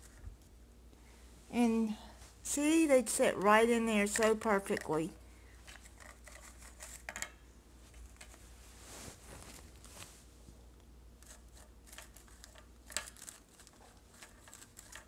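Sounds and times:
low steady hum: 0:00.0 - 0:15.0
rustling and light clicks: 0:05.6 - 0:10.3.

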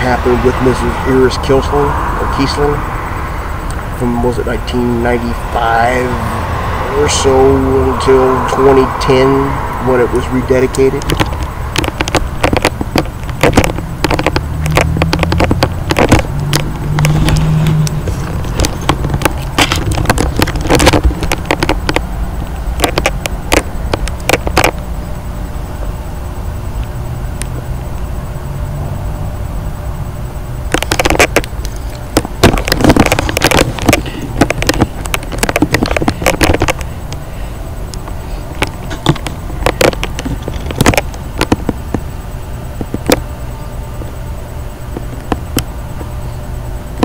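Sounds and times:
low rumble: 0:00.0 - 0:43.1
microphone handling rubbing: 0:10.0 - 0:24.9, 0:30.6 - 0:37.4, 0:38.0 - 0:44.2.

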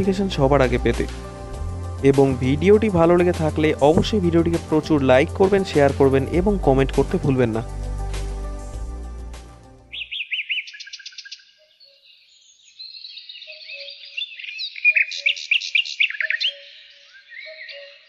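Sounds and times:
low short bird calls: 0:09.9 - 0:12.0
songbirds chirping and trilling: 0:09.9 - 0:18.0.

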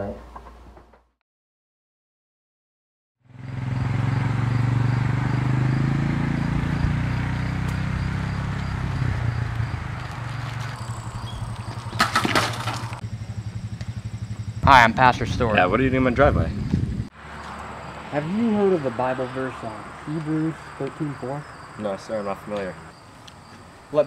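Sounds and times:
low pulsing rumble: 0:08.6 - 0:17.1
bicycle clattering on asphalt: 0:09.6 - 0:13.1.

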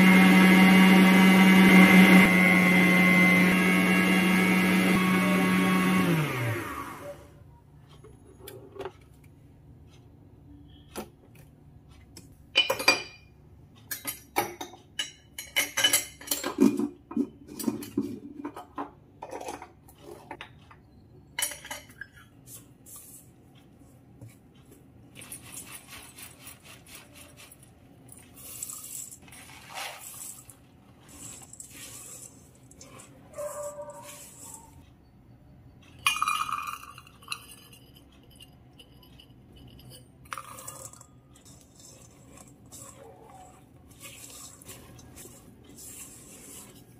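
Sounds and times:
mixer motor winding down: 0:00.0 - 0:07.3
oats stirred into dough: 0:22.4 - 0:34.8, 0:37.9 - 0:46.9
utensils scraping steel bowl: 0:25.2 - 0:34.8, 0:37.2 - 0:46.9.

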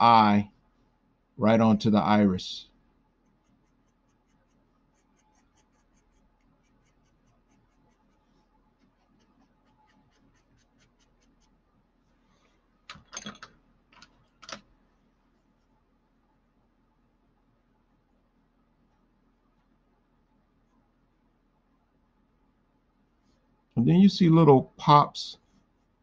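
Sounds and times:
pencil shading on paper: 0:03.2 - 0:11.6.

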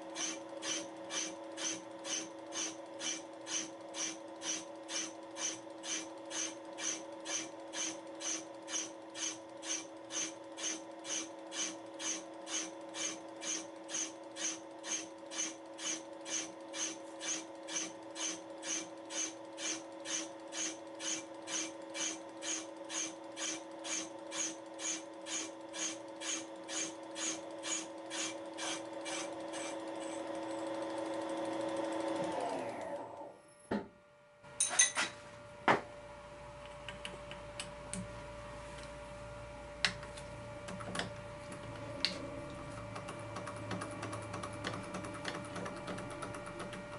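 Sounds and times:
machine drive hum: 0:35.3 - 0:46.9.

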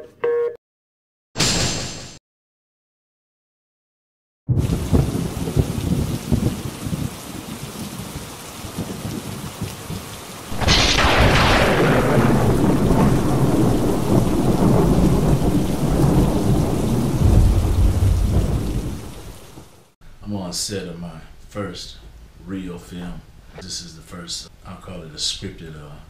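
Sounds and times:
loud thunderclap: 0:04.5 - 0:07.6, 0:08.6 - 0:19.7
thunder rumbling: 0:04.5 - 0:19.9.

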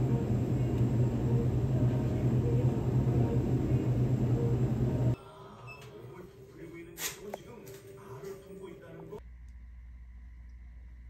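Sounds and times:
low hum: 0:00.0 - 0:05.8.

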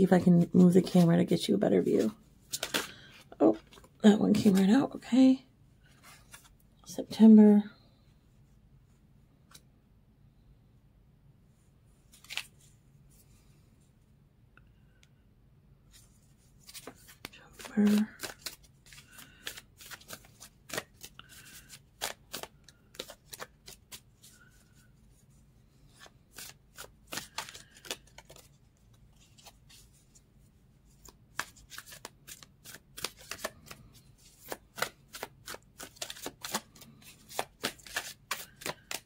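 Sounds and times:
cards being shuffled by hand: 0:00.0 - 0:04.9, 0:05.9 - 0:06.6, 0:12.1 - 0:12.7, 0:15.9 - 0:24.9, 0:25.8 - 0:30.2, 0:30.8 - 0:39.0.

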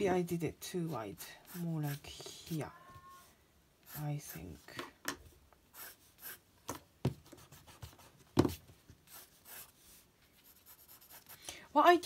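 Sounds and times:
pencil strokes on paper: 0:00.7 - 0:04.7, 0:05.7 - 0:06.4, 0:07.2 - 0:11.4.

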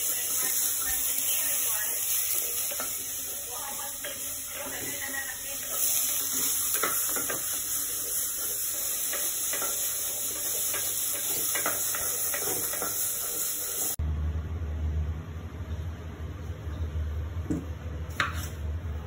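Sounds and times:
food frying sizzle: 0:00.0 - 0:14.0.

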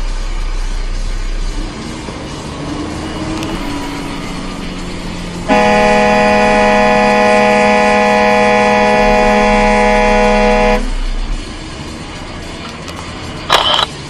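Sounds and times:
road noise: 0:00.0 - 0:14.0
vehicle horn blast: 0:03.9 - 0:11.4.

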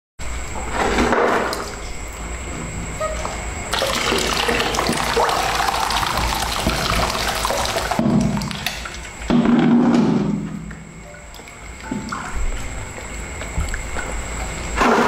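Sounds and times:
water pouring into basin: 0:03.8 - 0:09.1.

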